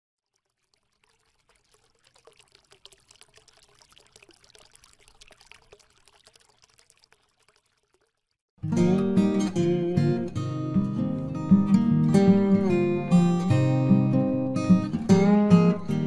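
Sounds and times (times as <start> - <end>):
water trickling and crackling: 0.2 - 8.5.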